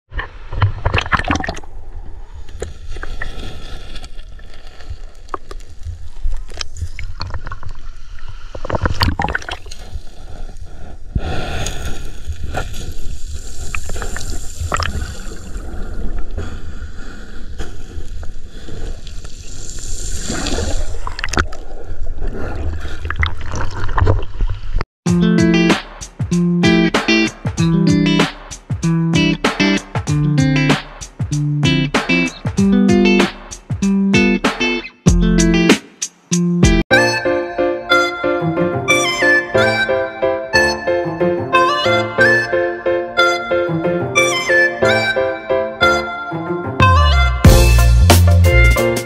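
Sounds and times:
seawater splashing and gurgling: 0:00.3 - 0:10.5, 0:11.4 - 0:24.8
sharp water splashes: 0:06.6 - 0:09.9.

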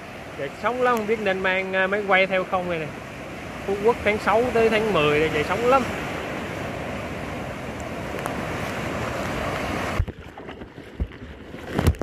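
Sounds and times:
surf washing around kayak: 0:00.0 - 0:12.0.

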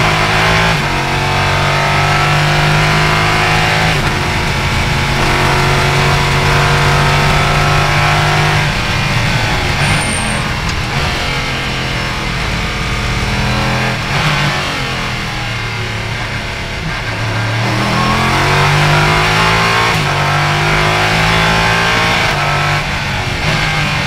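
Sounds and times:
race car engine accelerating: 0:00.0 - 0:24.0.

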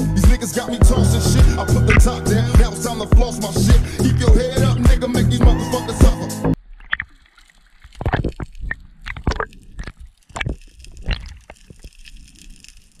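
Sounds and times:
splashes and knocks: 0:06.6 - 0:11.9
water sloshing and gurgling: 0:06.6 - 0:13.0.

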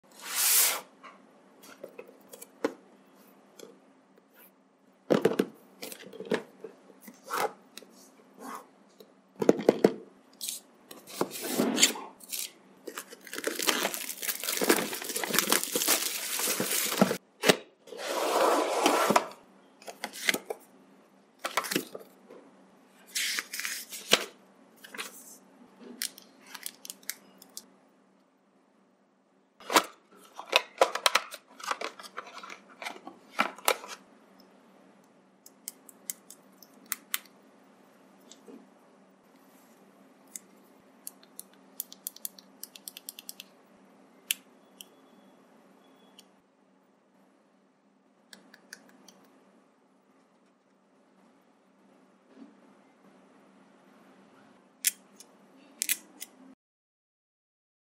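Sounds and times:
plastic wrapping tearing: 0:12.3 - 0:17.2
cardboard rustling: 0:12.9 - 0:17.2.

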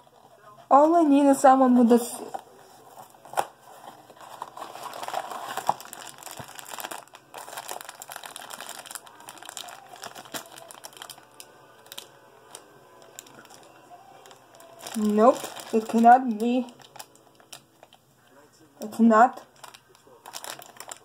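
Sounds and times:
box packaging crinkling: 0:02.3 - 0:18.0, 0:19.5 - 0:21.0
packaging clicks and snaps: 0:04.2 - 0:18.0, 0:19.5 - 0:21.0.

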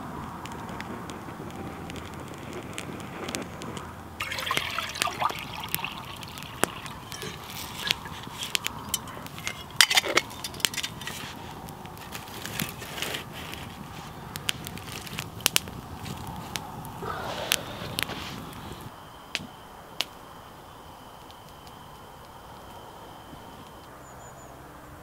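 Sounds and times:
campfire crackling and popping: 0:00.0 - 0:23.9
water trickling into steel mug: 0:04.2 - 0:11.4.

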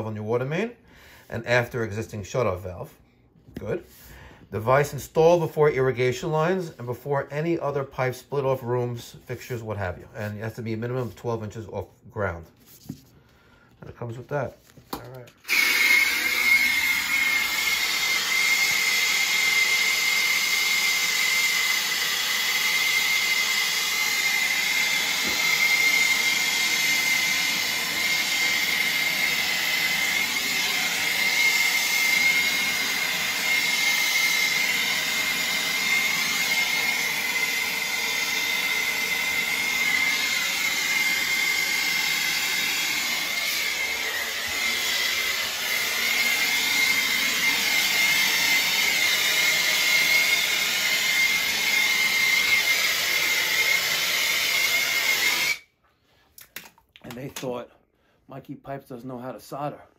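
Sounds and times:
soldering torch hissing roar: 0:15.4 - 0:55.6.

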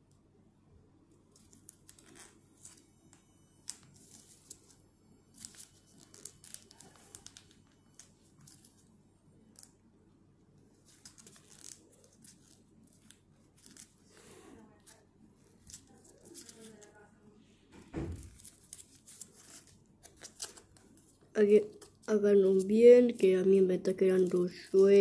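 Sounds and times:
paper crinkling as folded: 0:03.7 - 0:08.9, 0:10.7 - 0:17.0, 0:18.1 - 0:23.3, 0:24.2 - 0:25.0.

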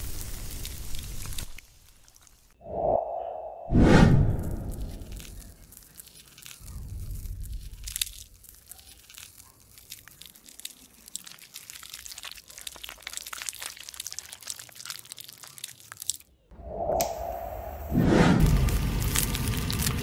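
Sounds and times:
low rumble: 0:02.6 - 0:05.5, 0:16.5 - 0:20.0.

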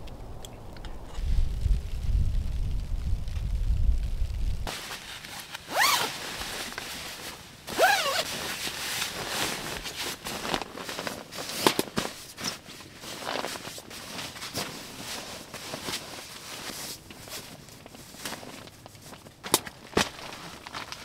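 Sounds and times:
low wind rumble: 0:00.0 - 0:04.7
nylon fabric rustling: 0:04.6 - 0:21.0
zipper pulled: 0:04.7 - 0:11.8.

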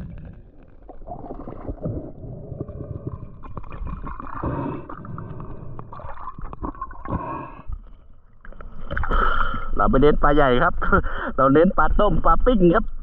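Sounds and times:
underwater gurgling and bubbling: 0:00.0 - 0:10.3.

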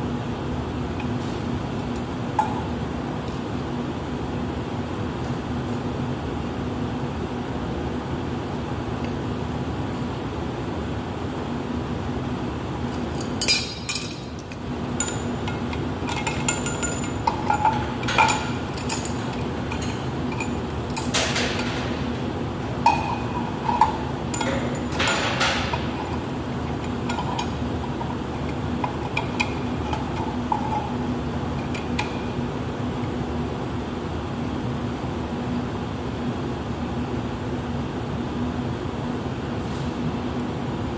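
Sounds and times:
steady background hum: 0:00.0 - 0:40.9
metal fittings clinking: 0:13.0 - 0:22.0, 0:22.8 - 0:31.0.

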